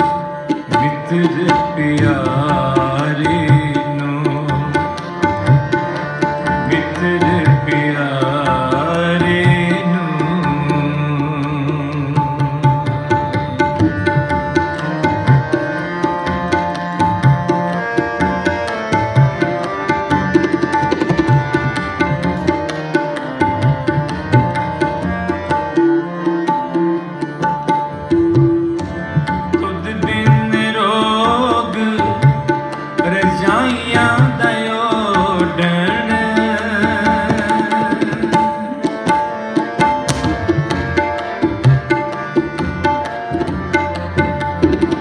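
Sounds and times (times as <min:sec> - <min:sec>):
harmonium chords: 0:00.0 - 0:45.0
tabla strokes: 0:00.0 - 0:45.0
man singing: 0:00.7 - 0:05.2, 0:06.6 - 0:13.0, 0:29.5 - 0:39.2.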